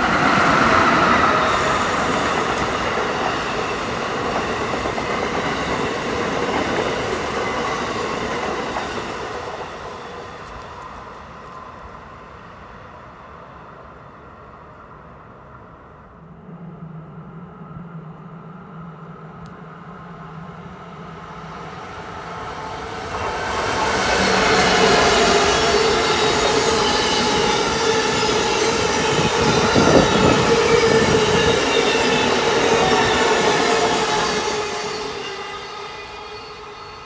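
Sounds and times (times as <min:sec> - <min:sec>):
train wheels rushing on rails: 0:00.0 - 0:13.2, 0:20.2 - 0:37.0.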